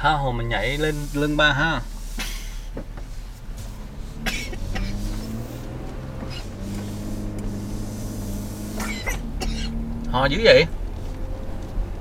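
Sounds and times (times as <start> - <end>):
car engine and road noise: 0.0 - 12.0
person coughing: 4.3 - 5.0, 8.8 - 9.8.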